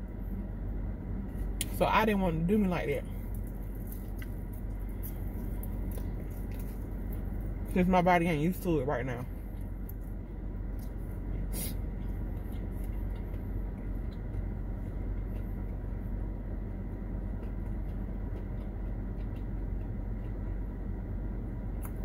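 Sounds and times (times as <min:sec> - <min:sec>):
quiet chewing: 0:03.1 - 0:07.7, 0:09.3 - 0:21.0
crunch of biting fried chicken: 0:17.2 - 0:20.7.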